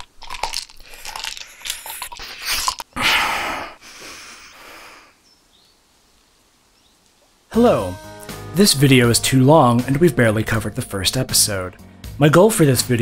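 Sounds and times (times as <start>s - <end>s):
person breathing out loudly: 0.8s - 5.2s.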